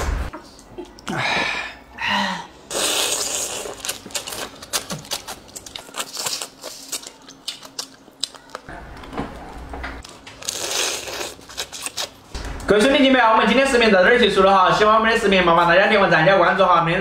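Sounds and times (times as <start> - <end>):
slurping and sucking: 2.7 - 4.0.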